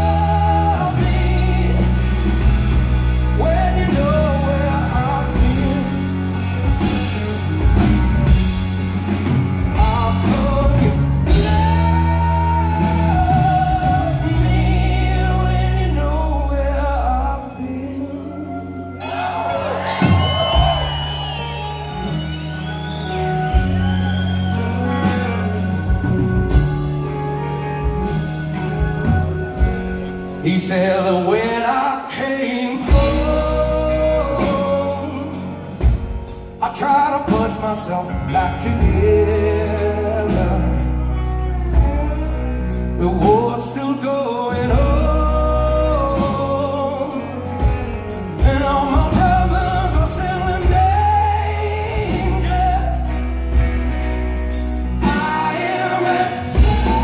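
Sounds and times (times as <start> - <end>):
man singing: 0.0 - 8.5, 9.1 - 21.6, 23.4 - 57.0
live rock band playing: 0.0 - 57.0.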